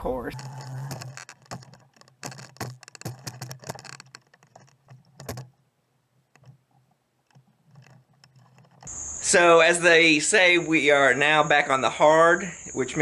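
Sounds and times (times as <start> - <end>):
outboard motor knocking and rattling: 0.0 - 5.6.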